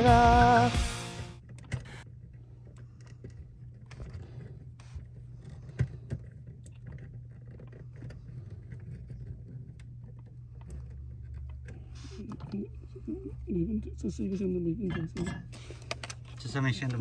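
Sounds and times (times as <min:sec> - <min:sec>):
steady low hum: 0:00.0 - 0:17.0
hands handling wires clicking: 0:15.1 - 0:17.0.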